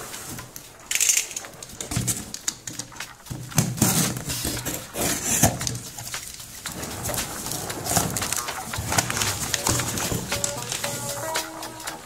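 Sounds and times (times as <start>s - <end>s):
sharp clicks: 0.4s - 3.8s
cardboard box rustling: 3.3s - 11.6s
box cutter slitting tape: 3.5s - 6.0s.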